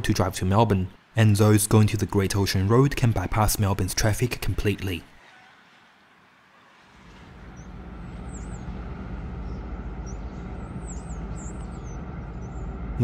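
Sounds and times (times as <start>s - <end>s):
steady low rumble: 7.2s - 13.0s
small birds chirping: 7.3s - 13.0s.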